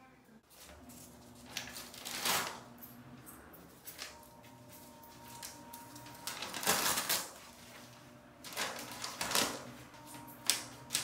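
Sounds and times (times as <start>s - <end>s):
paper crackling and ripping: 1.5s - 2.6s, 5.3s - 7.8s, 8.4s - 9.8s.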